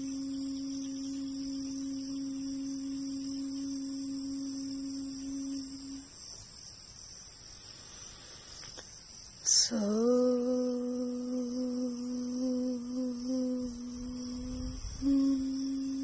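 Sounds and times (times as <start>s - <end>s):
low held tone: 0.0s - 6.1s, 9.6s - 16.0s
high-pitched insect chorus: 0.0s - 16.0s.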